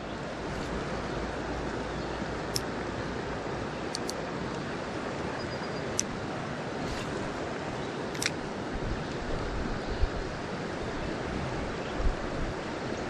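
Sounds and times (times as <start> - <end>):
creek water rushing over rocks: 0.0 - 13.0
light click: 3.9 - 4.2, 8.1 - 8.4.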